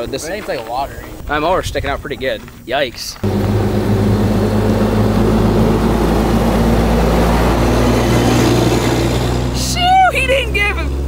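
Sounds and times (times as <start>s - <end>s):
truck diesel engine passing: 3.2s - 11.0s.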